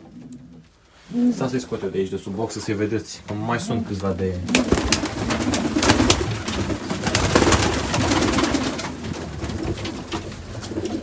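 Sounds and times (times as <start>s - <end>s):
pigeons cooing: 0.0s - 1.6s, 3.4s - 11.0s
rustles and knocks: 5.2s - 11.0s.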